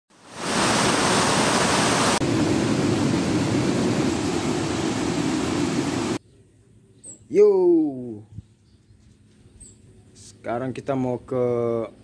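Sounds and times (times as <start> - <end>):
waterfall rushing: 0.1 - 6.2.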